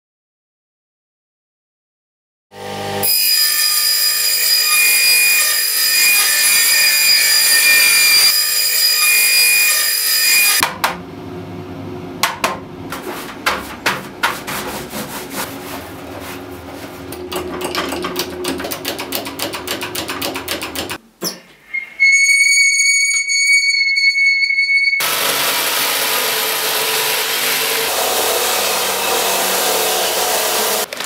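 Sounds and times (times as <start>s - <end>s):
power tool high whine: 2.6s - 10.6s, 25.0s - 30.9s.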